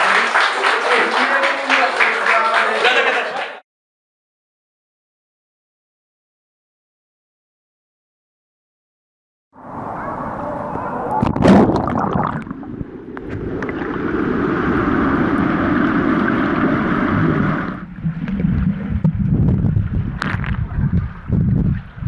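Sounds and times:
pool water splashing: 0:09.7 - 0:19.1
underwater sloshing: 0:10.8 - 0:20.8.

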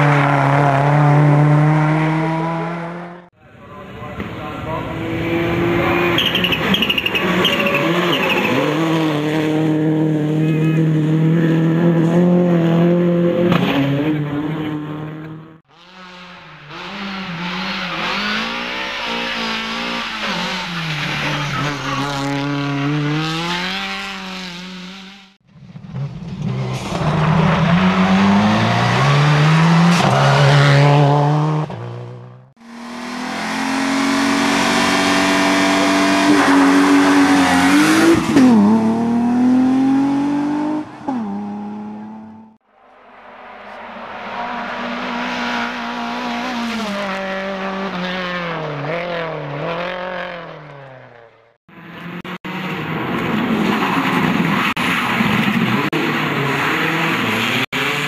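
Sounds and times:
car revving and shifting gears: 0:00.0 - 0:03.3, 0:04.6 - 0:42.6, 0:43.3 - 0:58.0
rally car engine at full throttle: 0:00.0 - 0:58.0.

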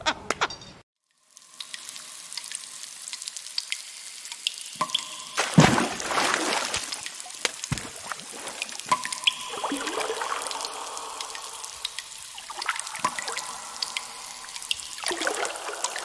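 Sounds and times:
water dripping and trickling: 0:01.0 - 0:16.0
faint steady tone: 0:08.9 - 0:16.0.

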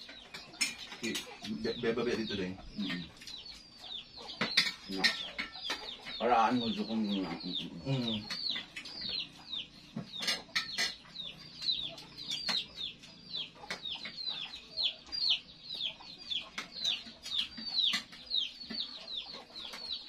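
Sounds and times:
chicks peeping: 0:00.0 - 0:20.0
spoons clinking on plates: 0:00.2 - 0:01.5, 0:04.4 - 0:06.8, 0:10.0 - 0:12.7.

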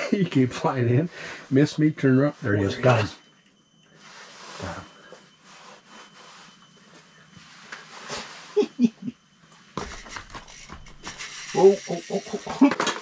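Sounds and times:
fishing gear rasping and rubbing: 0:10.0 - 0:12.6.

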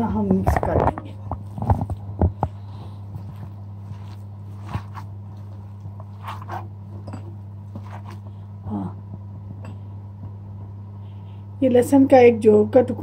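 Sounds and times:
low electrical hum: 0:00.0 - 0:13.0
hand squishing minced meat: 0:01.4 - 0:06.9, 0:07.6 - 0:08.3.

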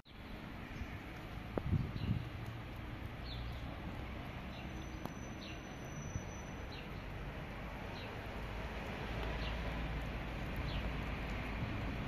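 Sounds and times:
low outdoor rumble: 0:00.1 - 0:12.0
small bird chirping: 0:04.5 - 0:07.2.

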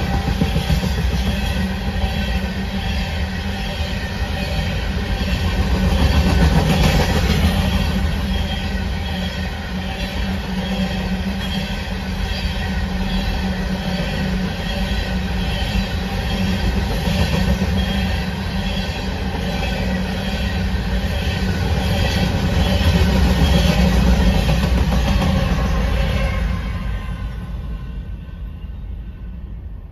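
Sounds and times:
train wheels clacking over rail joints: 0:21.4 - 0:26.0.

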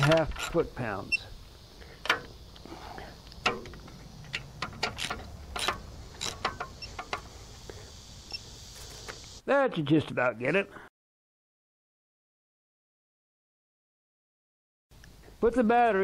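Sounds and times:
torque wrench ratchet clicking: 0:04.3 - 0:07.3.

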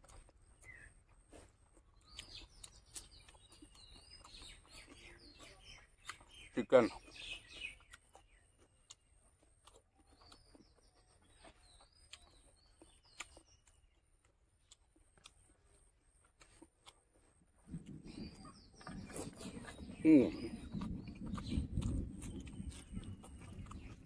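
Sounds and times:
faint bird chirps: 0:00.4 - 0:16.4, 0:17.7 - 0:24.0.

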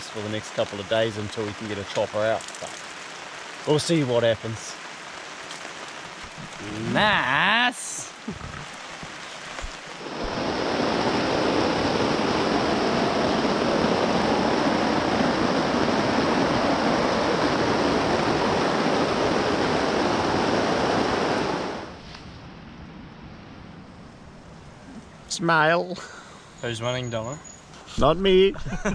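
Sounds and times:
water rushing: 0:00.0 - 0:22.0.

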